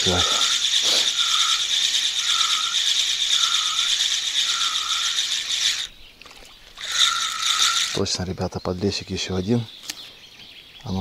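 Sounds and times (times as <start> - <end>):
fishing reel gears whirring: 0.0 - 5.9, 6.8 - 8.1.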